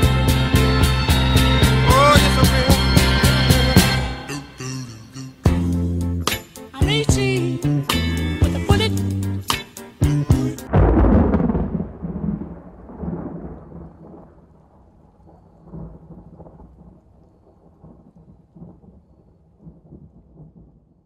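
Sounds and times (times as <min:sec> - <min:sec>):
thunder rumbling: 0:00.0 - 0:04.4, 0:10.6 - 0:21.0.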